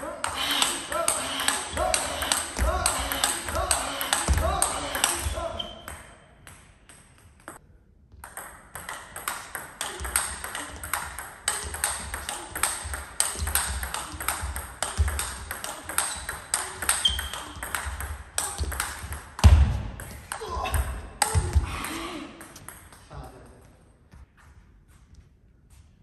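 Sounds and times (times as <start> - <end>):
table tennis ball hitting bats: 0.2 - 23.1.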